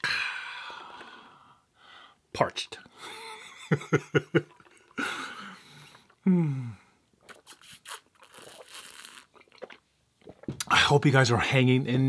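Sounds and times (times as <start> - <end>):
person sighing: 0.0 - 1.3, 5.0 - 7.0.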